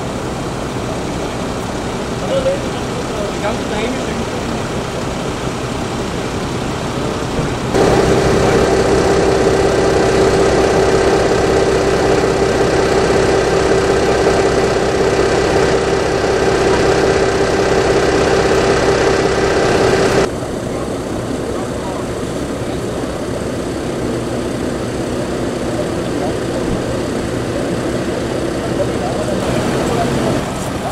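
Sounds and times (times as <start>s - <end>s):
engine idling: 0.0s - 30.9s
street noise: 0.0s - 30.9s.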